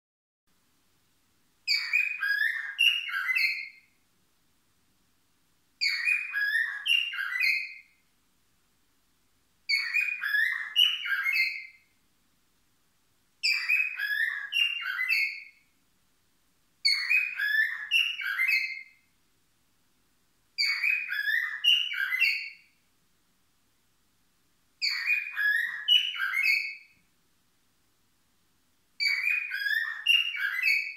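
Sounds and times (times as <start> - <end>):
cockatiel whistling: 1.7 - 3.8, 5.8 - 7.9, 9.7 - 11.8, 13.4 - 15.6, 16.8 - 18.9, 20.6 - 22.6, 24.8 - 26.9, 29.0 - 30.9.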